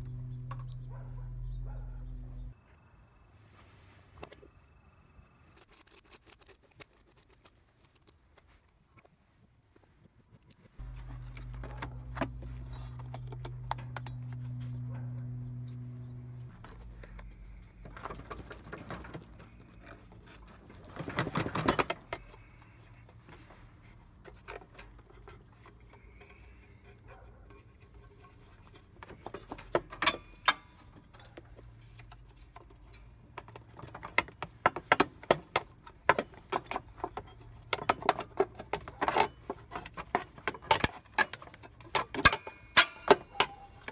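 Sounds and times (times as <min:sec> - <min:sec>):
steady low hum: 0:00.0 - 0:03.3, 0:10.8 - 0:18.4.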